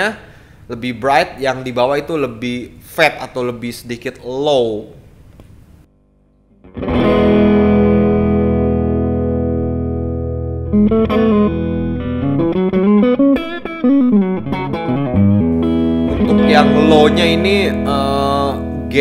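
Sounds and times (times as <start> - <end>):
overdriven electric guitar: 6.5 - 19.0.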